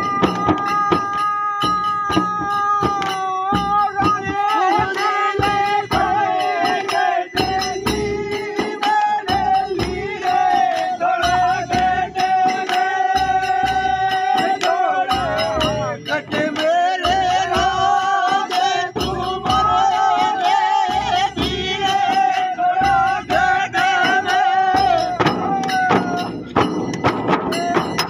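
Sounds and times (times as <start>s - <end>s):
men singing wavering melody: 0.0s - 26.6s, 27.4s - 28.0s
frame drums beating: 0.0s - 28.0s
sharp jingly clicks: 0.0s - 28.0s.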